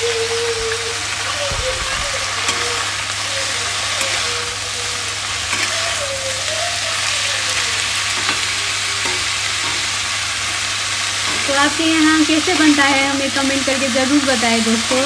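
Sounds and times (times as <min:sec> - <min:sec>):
vegetables sizzling in hot oil: 0:00.0 - 0:15.0
spatula scraping a pan: 0:02.4 - 0:10.2.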